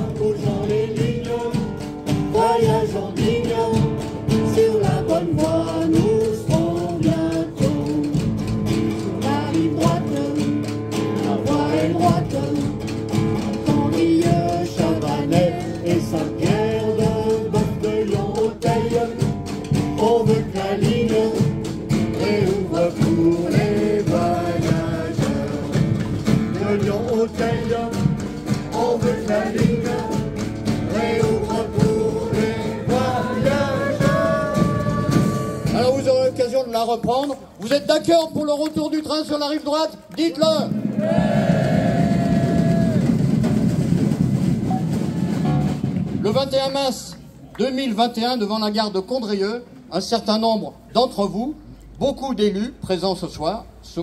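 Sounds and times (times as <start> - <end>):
group singing in chorus: 0.0 - 36.0, 40.9 - 43.0
instrumental accompaniment: 0.0 - 37.3, 40.8 - 47.0.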